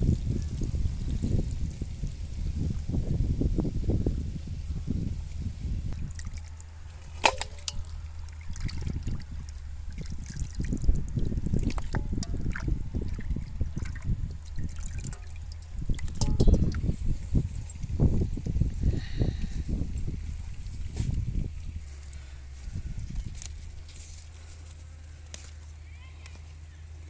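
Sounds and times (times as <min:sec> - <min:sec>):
water sloshing and dripping: 0:05.9 - 0:18.0.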